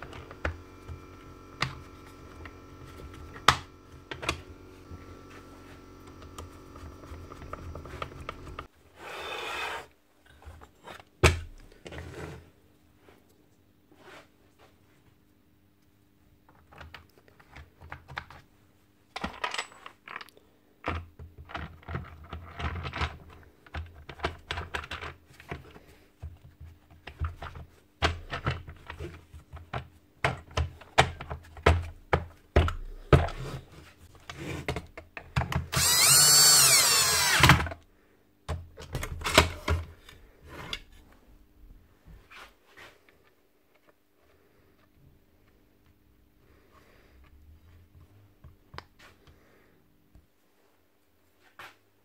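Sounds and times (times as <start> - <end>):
cordless drill running: 0.0 - 8.7, 35.7 - 37.7
plastic parts clicking and rattling: 19.1 - 33.4.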